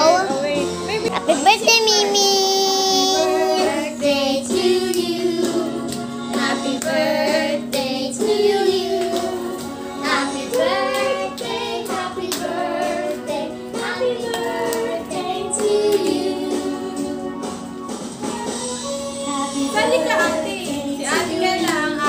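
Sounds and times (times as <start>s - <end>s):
song with vocals and backing track: 1.9s - 22.0s.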